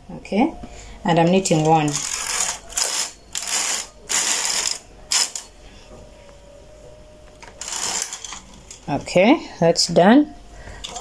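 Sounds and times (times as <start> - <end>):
knitting machine carriage rattling: 1.4 - 5.5, 7.6 - 8.4.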